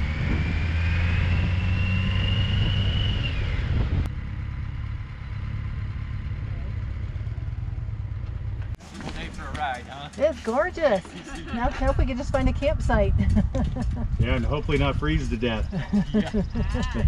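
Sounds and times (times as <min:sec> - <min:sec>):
high whine: 0:00.0 - 0:07.5
motorcycle engine rumble: 0:00.0 - 0:17.0.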